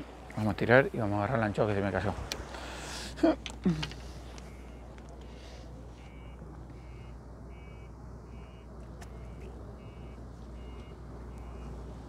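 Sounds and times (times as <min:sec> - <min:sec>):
reversing alarm beeping: 0:04.5 - 0:11.8.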